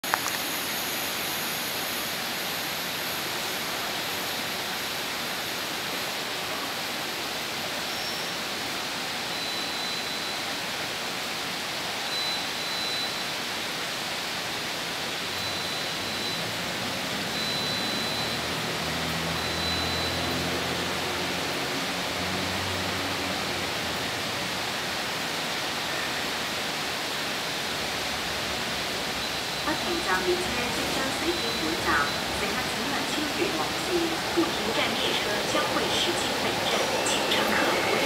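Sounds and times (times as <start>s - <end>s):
railway platform hiss: 0.0s - 38.0s
faint high tones: 29.2s - 38.0s.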